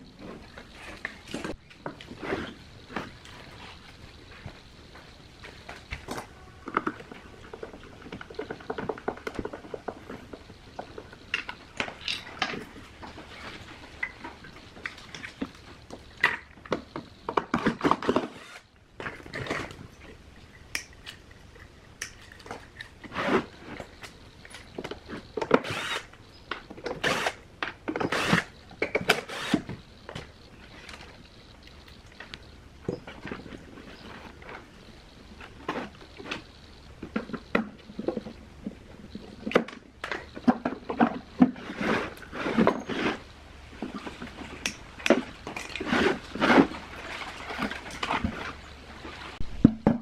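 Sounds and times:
cordless drill bursts: 25.6 - 26.1, 27.0 - 27.4, 29.1 - 29.6.

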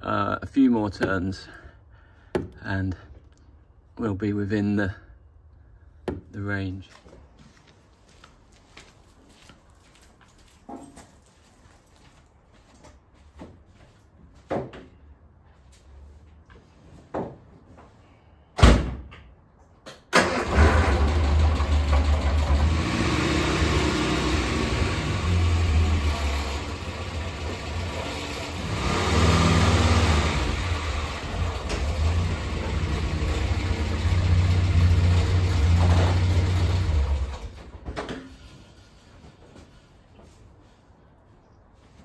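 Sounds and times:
car engine running and revving: 21.0 - 37.4.

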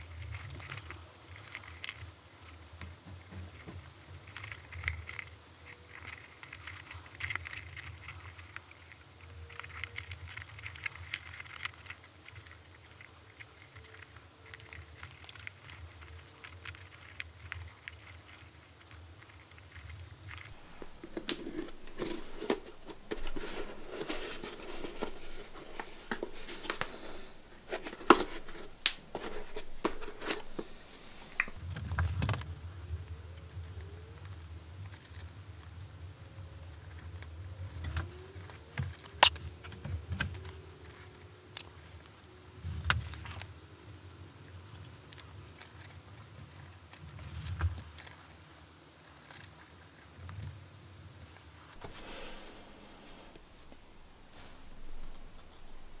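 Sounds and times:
leather crackling rustle: 20.4 - 31.6, 51.7 - 56.0.

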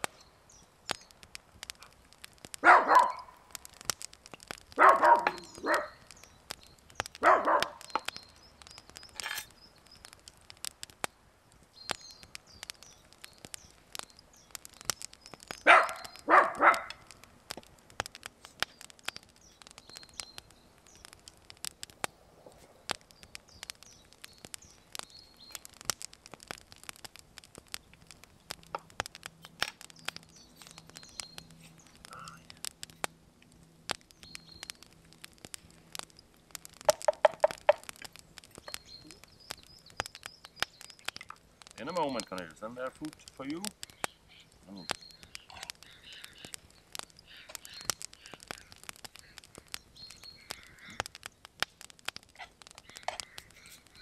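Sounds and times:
small dog barking: 2.6 - 3.4, 4.8 - 6.0, 7.2 - 7.9, 15.6 - 17.0.

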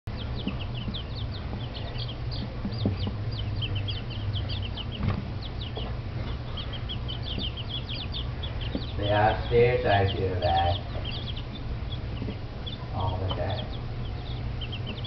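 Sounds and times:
chicks peeping: 0.1 - 15.0
low hum: 0.1 - 15.0.

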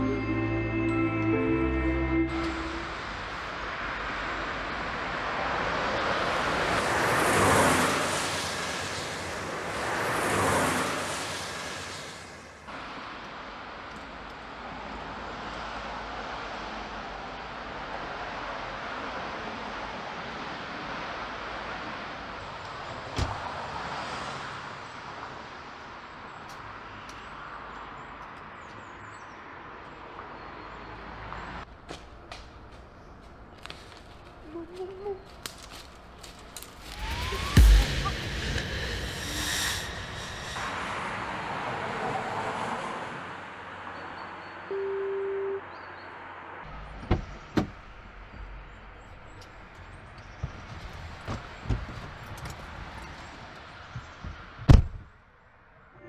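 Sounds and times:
cars passing: 0.0 - 56.0
outdoor noise: 0.0 - 56.0
whooshes: 36.8 - 41.5
car door shutting: 46.8 - 48.5, 50.3 - 53.2, 54.0 - 55.1.

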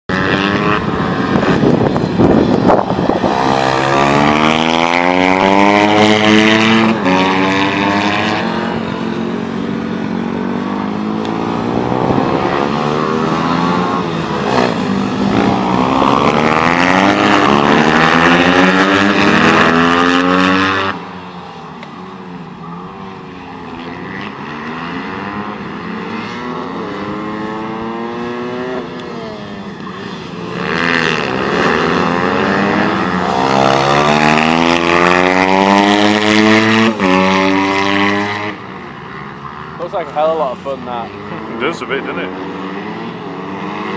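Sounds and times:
small motorbike engines revving: 0.1 - 43.9.

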